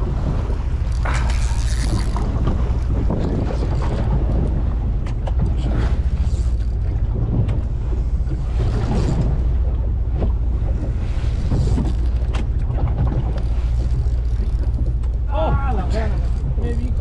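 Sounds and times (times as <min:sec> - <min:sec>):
boat engine low rumble: 0:00.0 - 0:17.0
water rushing along hull: 0:00.0 - 0:17.0
wind buffeting microphone: 0:00.0 - 0:17.0.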